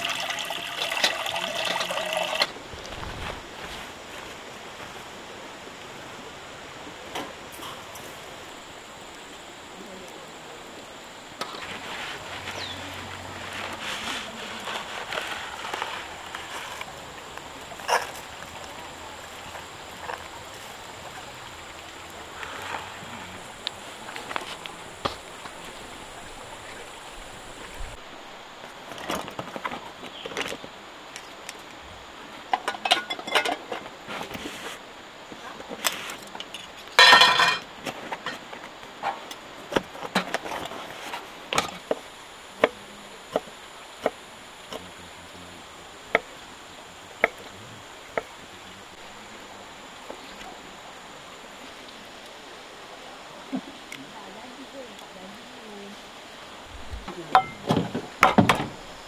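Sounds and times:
camp cooking gear clinking: 0.0s - 3.0s, 11.4s - 21.2s, 32.5s - 34.4s, 35.6s - 44.8s, 57.0s - 59.0s
river water rushing: 0.0s - 29.3s, 40.8s - 59.0s.

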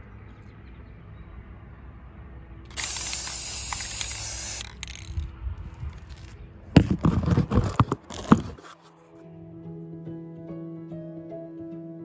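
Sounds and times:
spray paint can hissing: 2.7s - 5.2s
can knocking and rattling: 2.7s - 5.3s, 5.9s - 8.8s.

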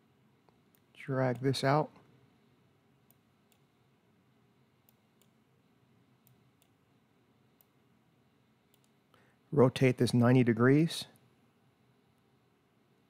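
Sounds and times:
computer mouse clicks: 3.1s - 3.7s, 4.8s - 5.4s, 6.2s - 6.8s, 8.7s - 9.0s.

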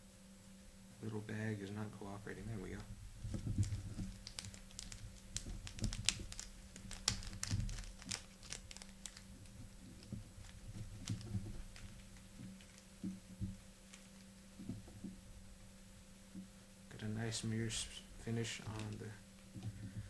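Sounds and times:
plastic bag crinkling: 2.3s - 14.4s, 17.8s - 19.7s.

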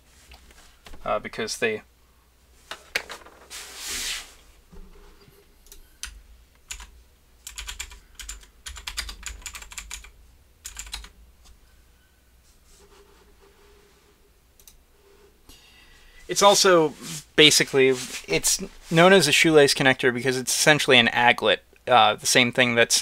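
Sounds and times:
brushing rustle: 3.4s - 5.2s, 12.4s - 14.2s, 16.3s - 19.2s.

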